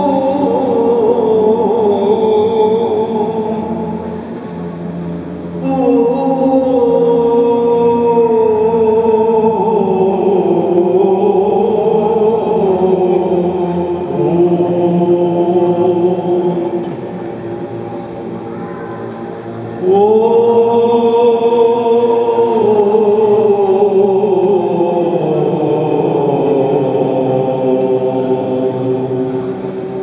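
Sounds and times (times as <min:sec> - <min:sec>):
held vocal drone: 0:00.0 - 0:30.0
men chanting melody: 0:05.5 - 0:17.3, 0:19.8 - 0:29.8.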